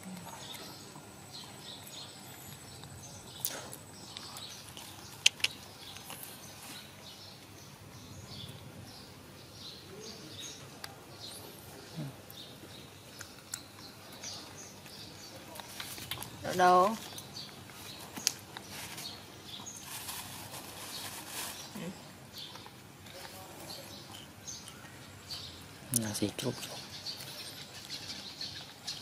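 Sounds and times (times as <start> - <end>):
sharp clicks and taps: 5.2 - 5.6.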